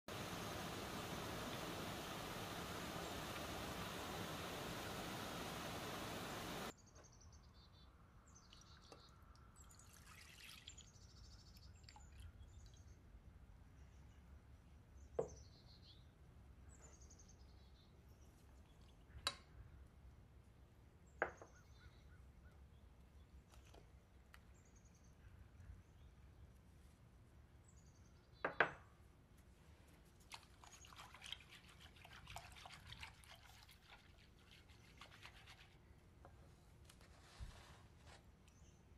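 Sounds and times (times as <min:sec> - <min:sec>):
milk pouring into saucepan: 0:09.8 - 0:11.0.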